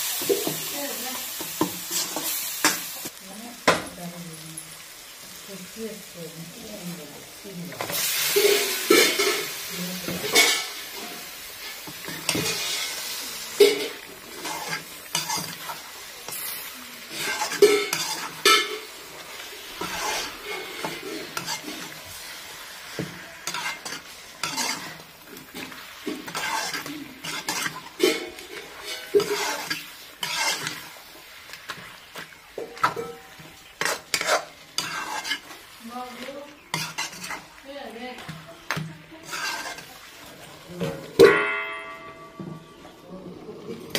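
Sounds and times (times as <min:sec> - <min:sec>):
chicken sizzling in a pan: 0:00.0 - 0:43.9
metal ladle scraping and knocking pan: 0:13.6 - 0:16.4, 0:17.1 - 0:18.9, 0:22.9 - 0:30.9, 0:32.6 - 0:35.6, 0:39.2 - 0:39.9.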